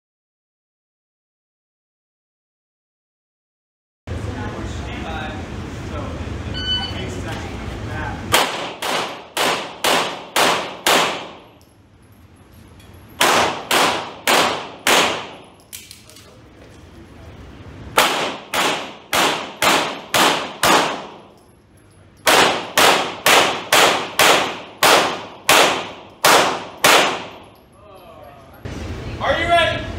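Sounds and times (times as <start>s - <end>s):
handgun shots echoing indoors: 8.3s - 11.8s, 13.0s - 16.3s, 17.9s - 21.6s, 22.2s - 27.7s.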